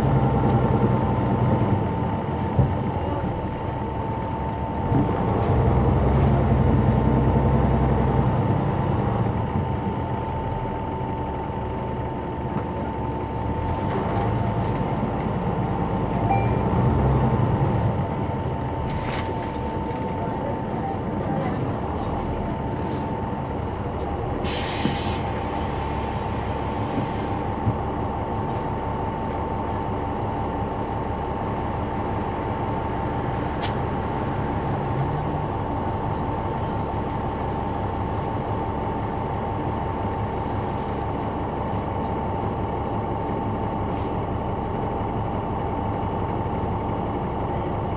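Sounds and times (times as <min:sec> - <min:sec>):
bus diesel engine droning: 0:00.0 - 0:47.9.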